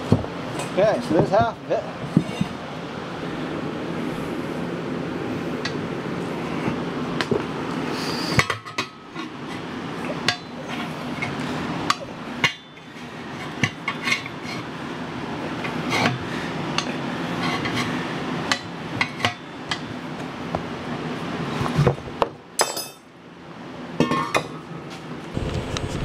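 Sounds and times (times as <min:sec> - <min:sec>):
steady background hum: 0:00.0 - 0:26.0
tire iron clinking on wheel rim: 0:10.2 - 0:14.4, 0:22.6 - 0:23.1.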